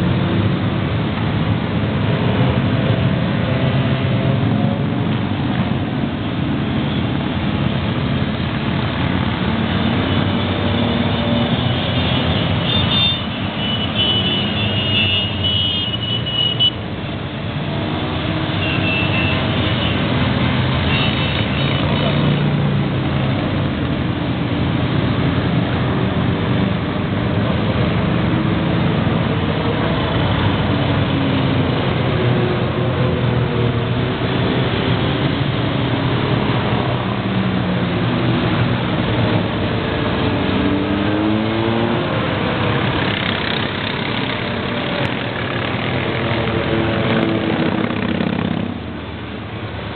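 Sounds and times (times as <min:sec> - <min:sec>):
motorcycles riding past: 0:17.4 - 0:49.1.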